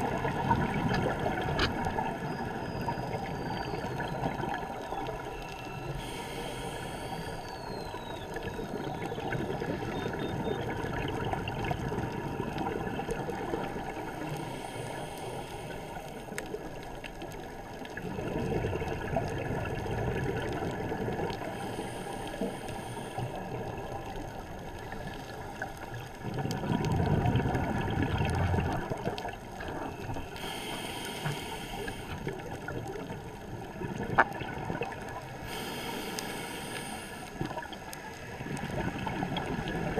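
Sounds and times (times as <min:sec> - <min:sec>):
exhaled bubbles rumbling: 0:00.0 - 0:05.9, 0:07.4 - 0:14.2, 0:16.5 - 0:21.8, 0:23.2 - 0:30.4, 0:32.0 - 0:35.4, 0:37.4 - 0:39.9
underwater ambience: 0:00.0 - 0:39.9
regulator hissing: 0:35.5 - 0:37.4.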